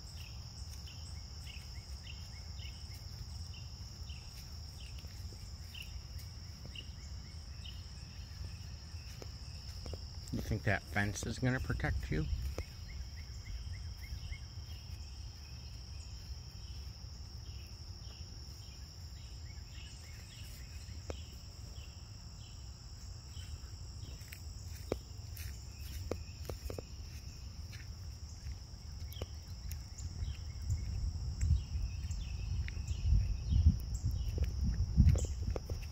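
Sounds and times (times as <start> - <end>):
faint chirps and clicks: 9.0 - 15.1, 19.9 - 21.4, 24.0 - 35.9.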